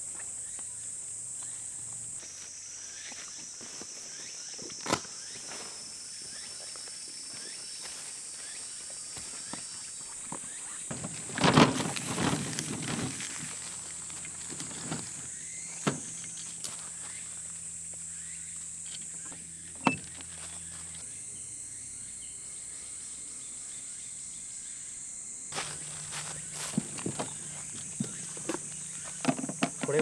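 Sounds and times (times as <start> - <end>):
insects buzzing: 0.0 - 30.0
footsteps on dry leaves: 5.2 - 17.7, 25.5 - 29.2
rustling and clattering: 10.8 - 16.5.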